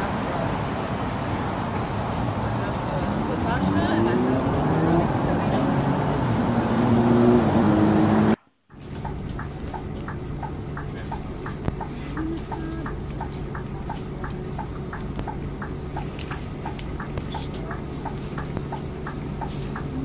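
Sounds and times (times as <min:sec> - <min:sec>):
bus engine idling: 0:00.0 - 0:20.0
street traffic: 0:00.0 - 0:20.0
turn signal clicking: 0:08.2 - 0:20.0.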